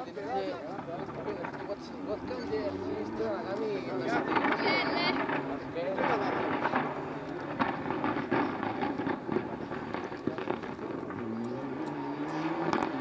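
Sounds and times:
engine pops and crackles: 0.0 - 13.0
rally car engine running: 0.1 - 13.0.

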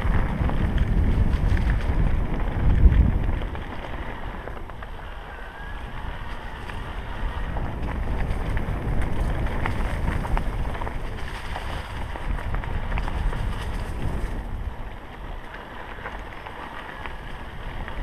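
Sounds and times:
bike tyres on dirt: 0.0 - 18.0
wind buffeting microphone: 0.0 - 18.0.

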